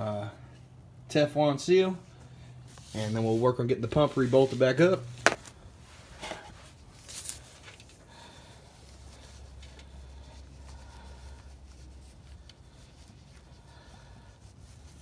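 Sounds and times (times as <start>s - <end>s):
rustling: 2.0s - 15.0s.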